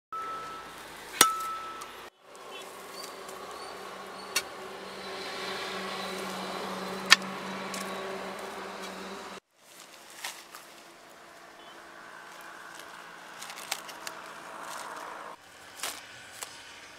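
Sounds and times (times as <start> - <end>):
steady hum: 2.8 - 9.4.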